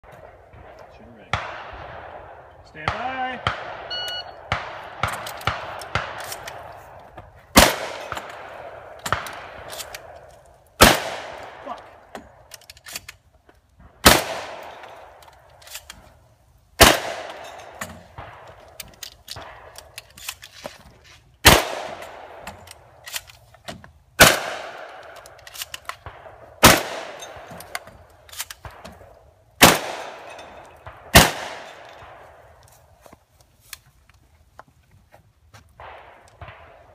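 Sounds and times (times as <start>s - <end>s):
shotgun blasts: 0.1s - 6.9s, 7.5s - 10.2s, 10.8s - 12.1s, 13.8s - 15.2s, 16.8s - 18.8s, 21.4s - 22.4s, 24.2s - 25.2s, 26.0s - 28.0s, 28.6s - 32.6s, 35.8s - 36.9s.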